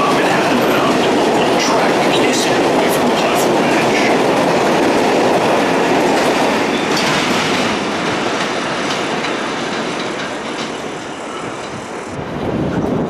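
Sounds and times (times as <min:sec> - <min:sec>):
wheel clatter over rail joints: 0:00.0 - 0:11.8
train running noise: 0:00.0 - 0:13.0.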